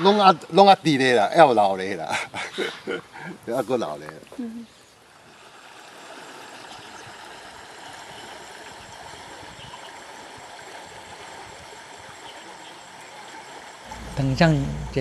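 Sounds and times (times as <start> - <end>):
steady rushing hiss: 0.0 - 4.1.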